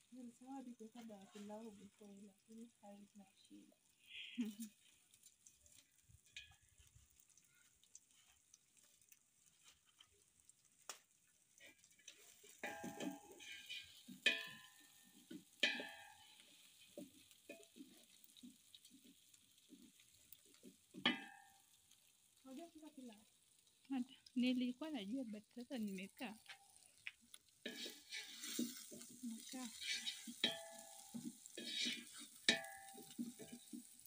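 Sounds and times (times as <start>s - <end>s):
wooden spoon scraping pot: 11.6s - 21.3s, 27.6s - 34.0s.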